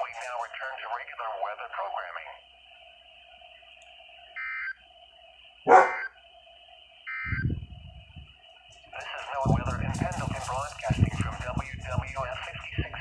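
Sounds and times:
buzzing radio data tones: 0.0 - 13.0
dog barking: 5.7 - 6.1.

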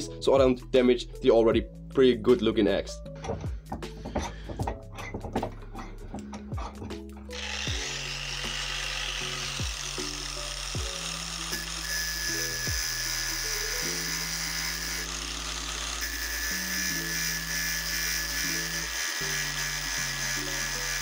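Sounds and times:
background music with bass: 0.0 - 16.0
angle grinder grinding steel: 3.1 - 21.0.

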